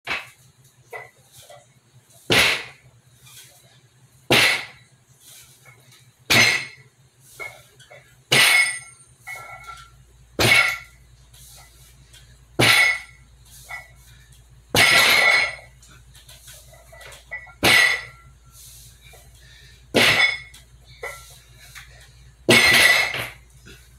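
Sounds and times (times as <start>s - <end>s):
barbell hitting bottom: 2.3s - 2.8s, 4.3s - 4.8s, 6.3s - 6.8s, 8.3s - 11.0s, 12.6s - 13.2s, 14.7s - 15.7s, 17.3s - 18.2s, 19.9s - 21.2s, 22.5s - 23.4s.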